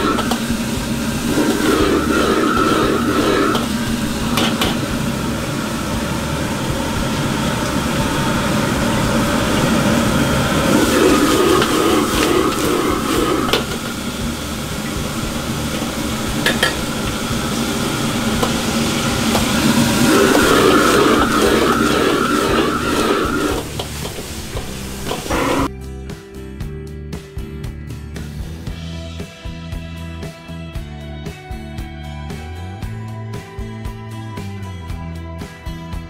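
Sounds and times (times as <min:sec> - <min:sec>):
food sizzling: 0:00.0 - 0:25.7
wok burner roar: 0:00.0 - 0:25.7
metal ladle scraping wok: 0:01.1 - 0:05.5, 0:06.9 - 0:25.7.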